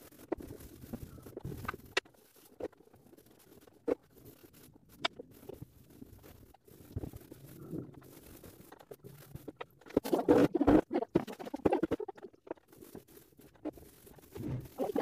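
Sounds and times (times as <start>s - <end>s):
paintbrush scratching and dabbing: 0.0s - 15.0s.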